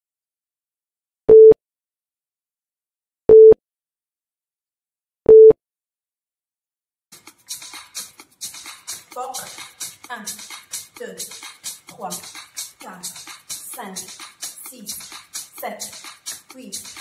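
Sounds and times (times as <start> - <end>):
countdown timer beeps: 3.3 - 3.6, 5.3 - 5.6.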